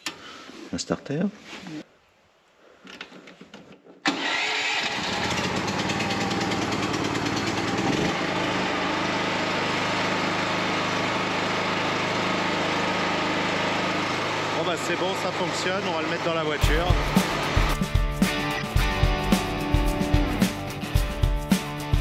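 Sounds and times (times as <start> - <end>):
generator engine starting and droning: 4.0 - 21.1.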